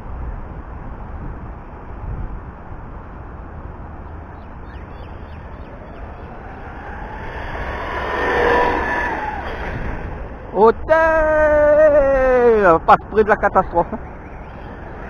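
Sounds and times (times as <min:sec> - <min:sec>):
electric motor whining: 0:05.1 - 0:10.5.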